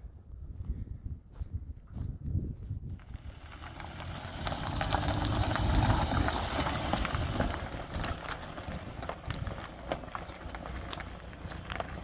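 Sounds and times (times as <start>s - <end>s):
car engine and tyre rumble: 0.0s - 12.0s
stones crackling under tyres: 2.9s - 12.0s.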